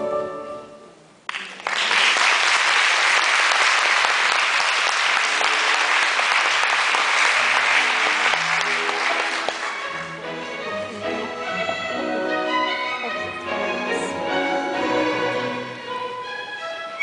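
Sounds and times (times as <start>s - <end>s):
piano music: 0.0s - 1.0s, 7.1s - 17.0s
audience applauding: 1.3s - 10.0s.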